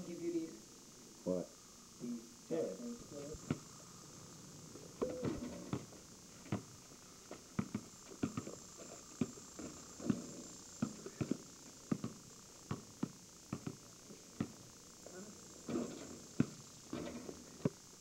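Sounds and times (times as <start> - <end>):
basketball bouncing on pavement: 5.0 - 13.8, 14.4 - 14.6, 15.7 - 17.8.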